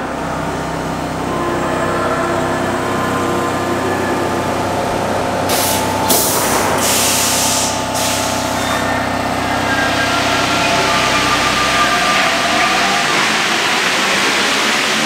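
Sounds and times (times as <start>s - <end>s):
train electrical hum: 0.0s - 15.0s
train motor whine: 0.0s - 15.0s
compressed air hiss: 5.5s - 8.8s.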